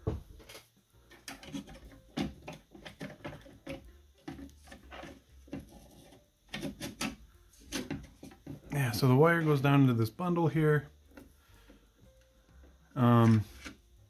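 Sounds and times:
plastic clicking and scraping on metal: 0.4s - 8.7s.

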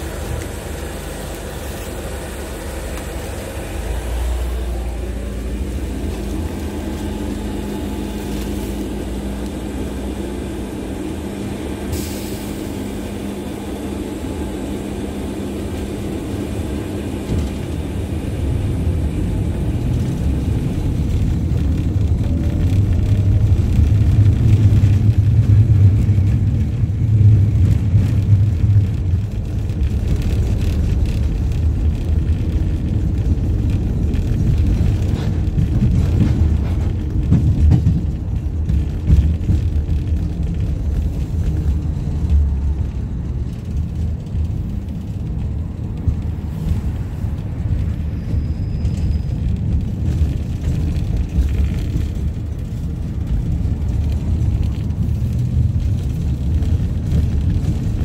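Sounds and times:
tram wheels rumbling on rails: 0.0s - 58.0s.

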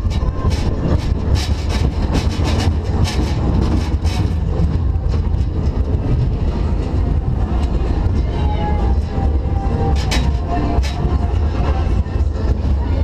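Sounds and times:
rapid clattering clicks: 0.0s - 6.0s
roller coaster wheels rumbling: 0.0s - 13.0s.

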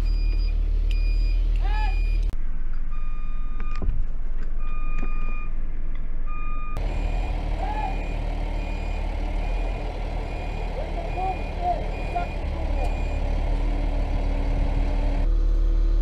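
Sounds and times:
warning alarm beeping: 6.3s - 13.7s
truck engine running: 6.8s - 16.0s.

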